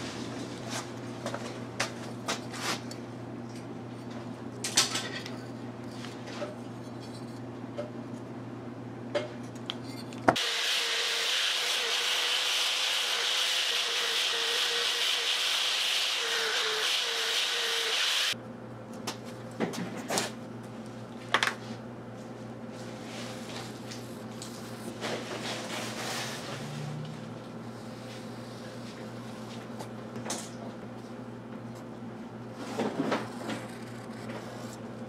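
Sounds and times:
polishing wheel humming and hissing: 10.4s - 18.4s.

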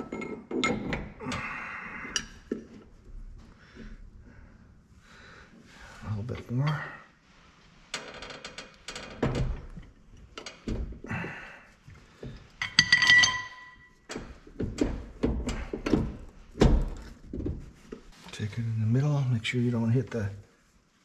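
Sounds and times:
steel parts knocking and clicking: 12.6s - 16.1s.

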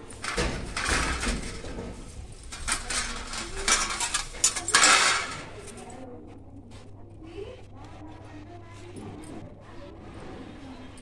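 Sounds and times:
steel plates clinking and scraping: 0.0s - 5.8s.

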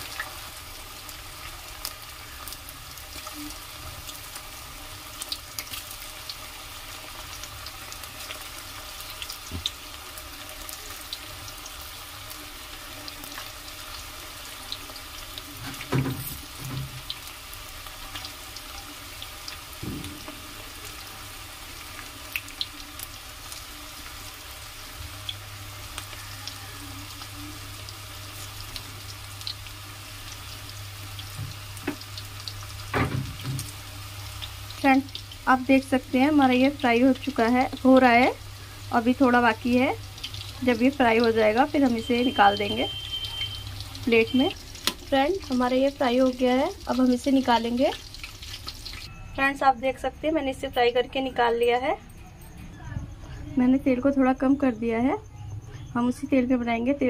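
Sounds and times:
food sizzling in hot oil: 0.0s - 51.5s
knock: 19.8s - 20.2s.

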